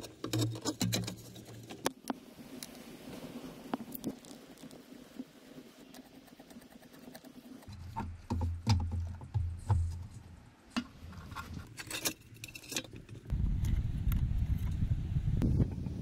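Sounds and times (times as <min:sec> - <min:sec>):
screwdriver and metal parts rattling: 0:11.2 - 0:13.3.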